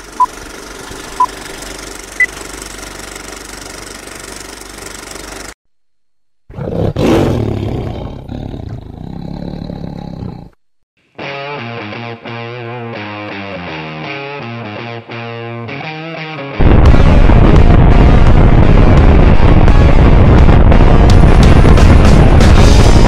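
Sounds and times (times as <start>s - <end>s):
lion roar: 6.5s - 10.6s.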